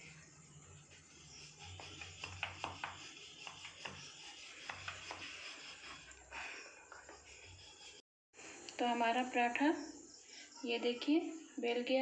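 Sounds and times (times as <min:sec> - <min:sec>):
rolling pin rubbing dough: 0:00.8 - 0:06.2.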